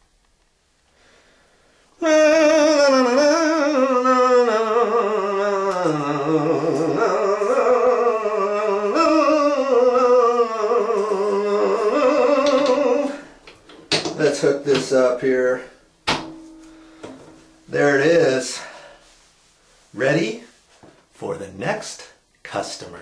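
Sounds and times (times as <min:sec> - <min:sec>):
person humming: 0:02.0 - 0:13.3.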